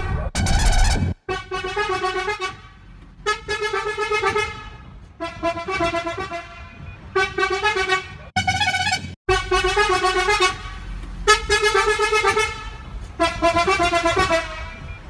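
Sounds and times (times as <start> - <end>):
truck horn blasts: 1.2 - 15.0.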